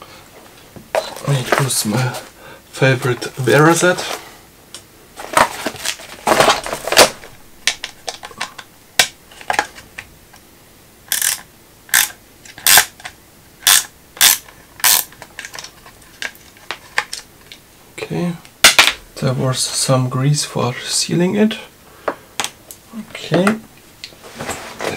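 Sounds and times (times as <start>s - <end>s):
ratchet clicking: 11.1s - 12.9s, 13.6s - 15.1s.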